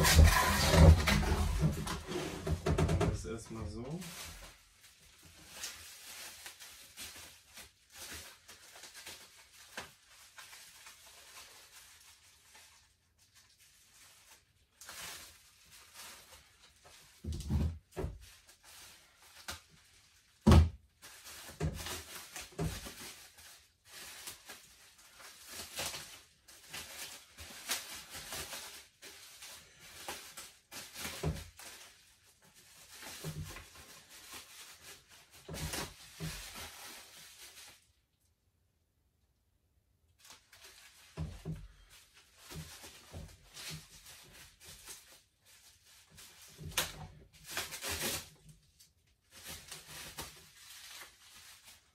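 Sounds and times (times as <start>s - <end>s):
packaging rustling: 0.0s - 2.6s, 3.9s - 17.4s, 21.0s - 38.0s, 40.2s - 51.9s
knocks and thunks: 0.0s - 3.2s.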